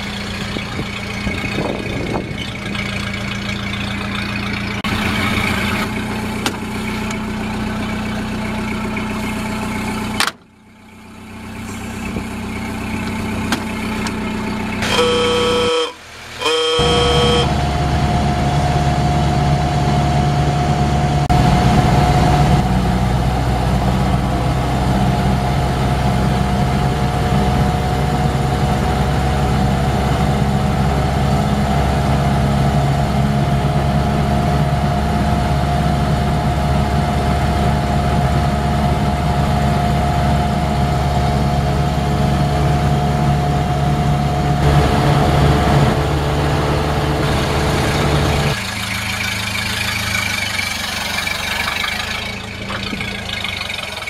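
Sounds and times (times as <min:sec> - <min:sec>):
car engine running while driving: 0:00.0 - 0:54.0
car horn toot: 0:14.8 - 0:17.8.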